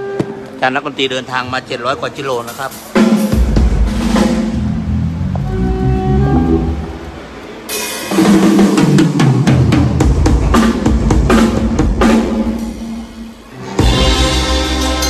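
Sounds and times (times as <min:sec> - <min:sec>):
sustained band music: 0:02.4 - 0:15.0
fast snare and bass drum hits: 0:03.0 - 0:04.7.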